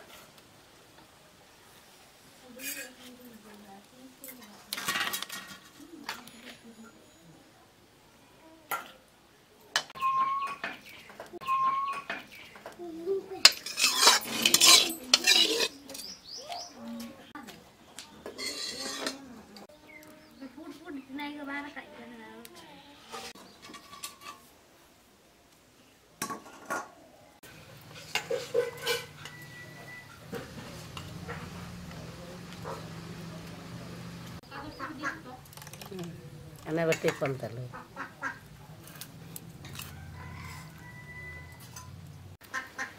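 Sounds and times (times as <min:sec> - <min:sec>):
steel spoon clinking against bowl: 0:13.5 - 0:16.2.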